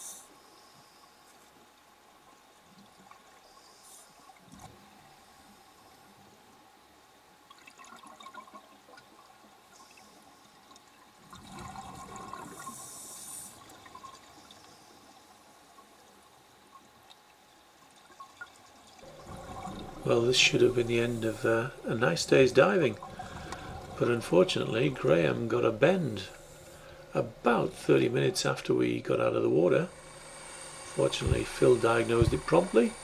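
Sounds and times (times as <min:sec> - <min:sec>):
underwater bubbles: 0:07.5 - 0:17.4, 0:18.0 - 0:33.0.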